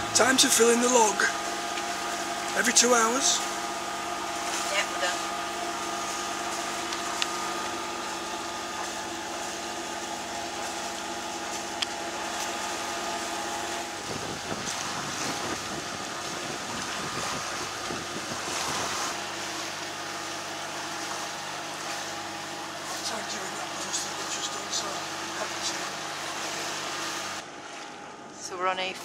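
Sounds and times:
boat engine hum: 0.0s - 29.0s
wind noise on microphone: 14.0s - 19.1s.

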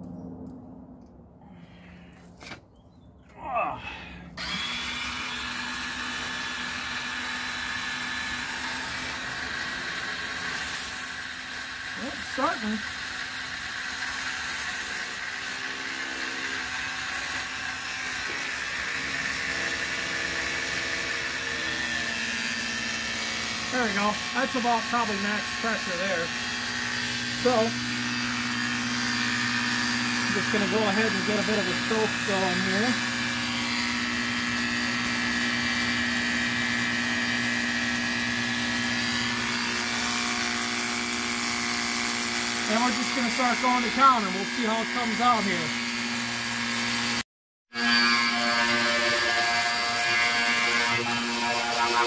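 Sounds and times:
pressure washer motor humming: 4.4s - 45.8s.

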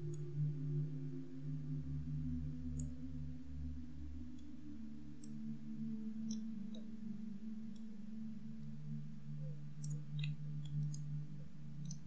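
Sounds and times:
steady low hum: 0.0s - 12.0s
computer mouse clicking: 9.8s - 11.1s, 11.8s - 12.0s.

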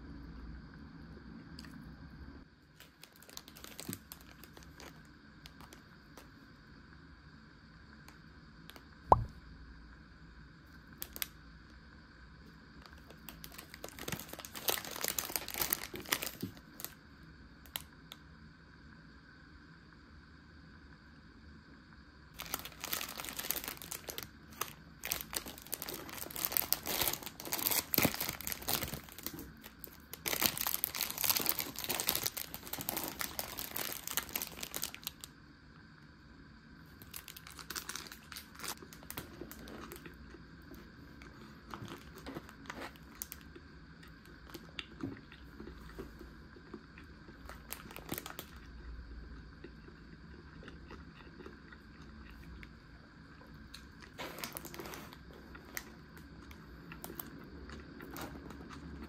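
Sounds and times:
plastic wrapper crinkling: 2.8s - 5.8s, 12.8s - 17.0s, 22.4s - 35.3s, 37.0s - 40.2s, 41.2s - 43.5s, 47.4s - 48.7s, 54.0s - 57.3s.

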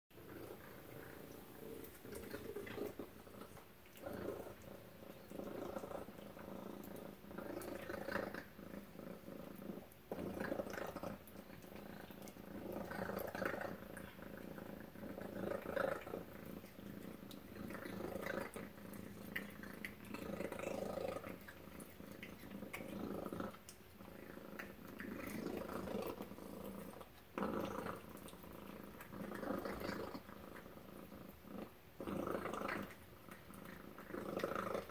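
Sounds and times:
cat purring: 0.2s - 34.9s
wet chewing and licking clicks: 1.2s - 8.3s, 9.4s - 31.4s.

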